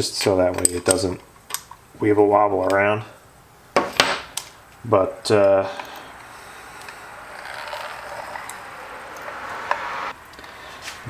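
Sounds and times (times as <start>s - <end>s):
hand-cranked grinder whirring: 6.8s - 10.6s.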